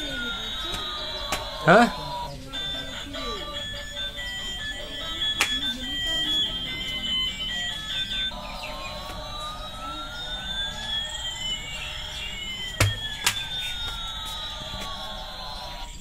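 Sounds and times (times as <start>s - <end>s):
toy beeping tune: 0.0s - 16.0s
sharp knocks: 12.8s - 13.4s.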